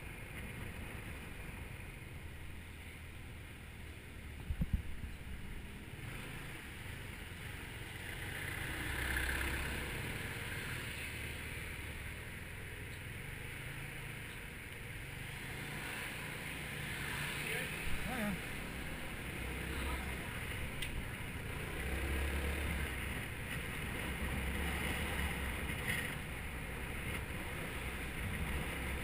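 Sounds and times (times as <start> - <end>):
street traffic: 0.0 - 29.0
wind noise: 4.4 - 5.6.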